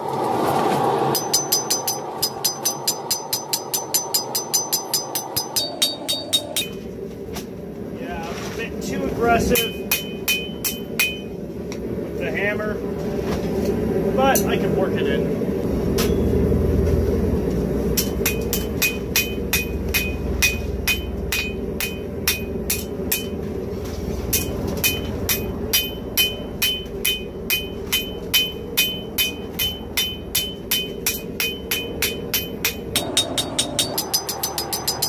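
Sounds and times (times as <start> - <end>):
low rumble: 0.0 - 35.0
hammer ringing on anvil: 1.1 - 6.8, 9.6 - 11.3, 18.0 - 23.4, 24.3 - 35.0.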